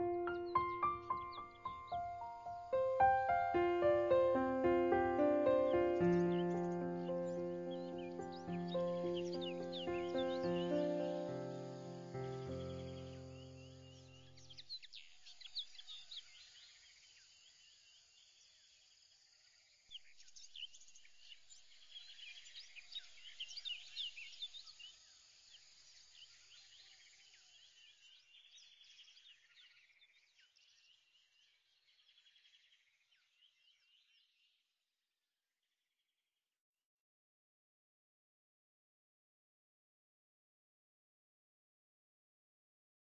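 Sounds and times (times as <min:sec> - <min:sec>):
birds chirping in chorus: 0:00.0 - 0:16.5.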